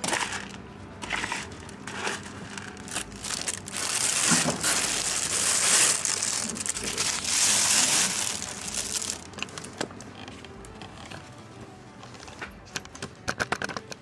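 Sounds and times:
thin plastic crinkling: 1.3 - 10.7.

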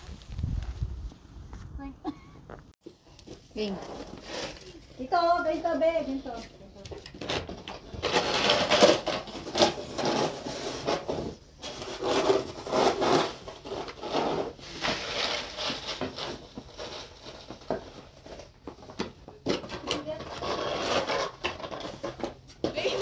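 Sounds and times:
snow shovel scraping snow: 3.6 - 5.2.

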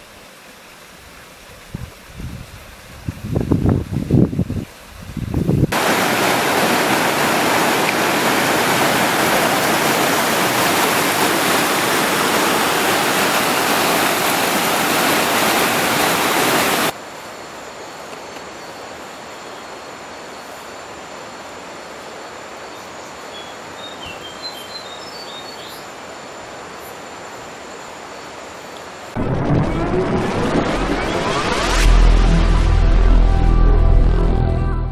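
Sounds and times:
river rushing over rocks: 5.7 - 17.0.

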